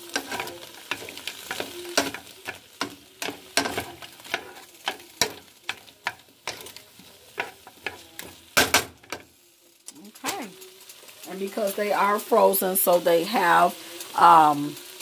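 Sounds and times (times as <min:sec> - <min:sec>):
tongs knocking and scraping a pan: 0:00.0 - 0:09.3
vegetables sizzling in a skillet: 0:00.0 - 0:15.0.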